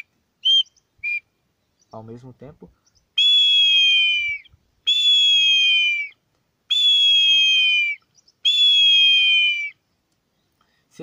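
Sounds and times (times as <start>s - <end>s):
ceramic whistle blasts: 6.7s - 9.7s.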